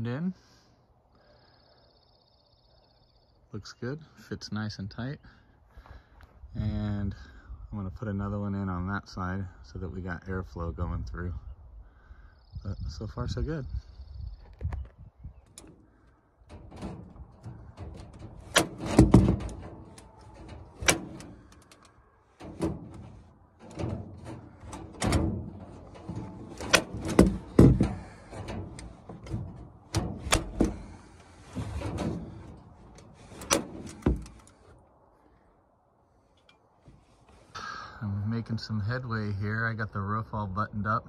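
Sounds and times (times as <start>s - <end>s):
metal slide-bolt latch: 16.5s - 31.0s, 31.6s - 34.5s
wooden door knocking and rattling: 16.6s - 21.3s, 23.6s - 31.0s.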